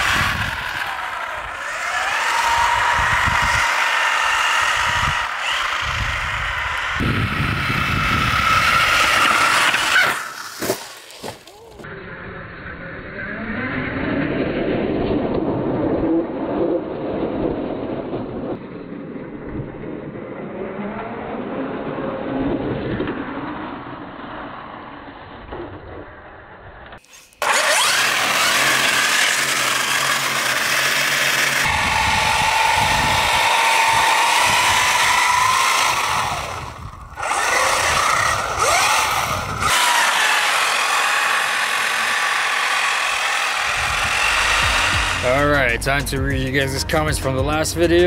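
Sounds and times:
rc truck motor whining: 0.0s - 14.6s, 26.0s - 45.8s.

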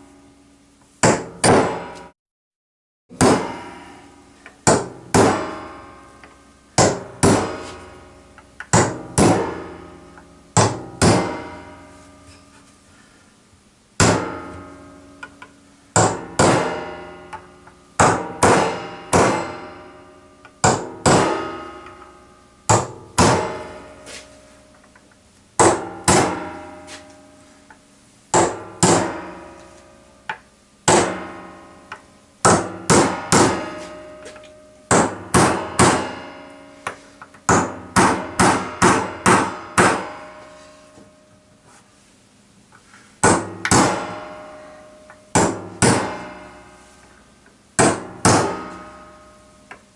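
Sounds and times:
hammer driving nails into timber: 32.4s - 33.7s, 34.9s - 36.1s, 43.2s - 44.1s, 47.8s - 48.6s.

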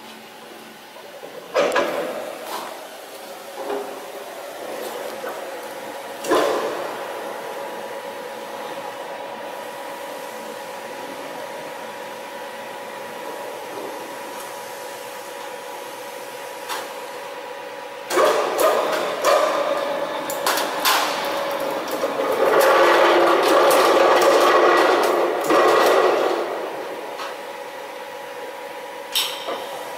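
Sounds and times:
machine electric hum: 0.0s - 29.9s.

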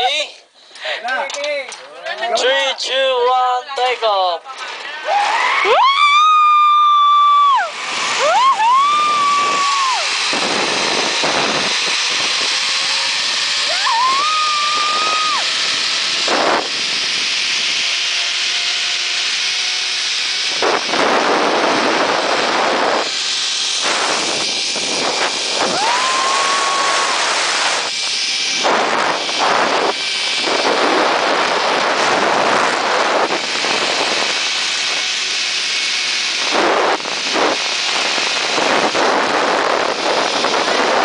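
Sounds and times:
woman whooping: 5.0s - 10.1s, 13.7s - 15.4s, 25.7s - 27.2s
wind buffeting microphone: 7.6s - 41.0s.

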